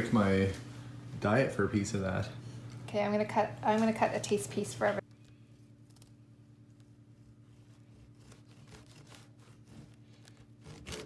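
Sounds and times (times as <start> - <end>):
bread knife sawing cake: 7.2 - 11.0.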